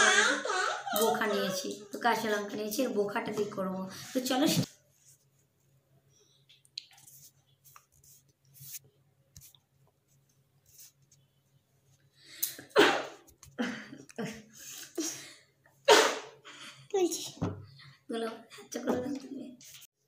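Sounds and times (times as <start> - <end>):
woman sneezing: 15.9 - 16.3.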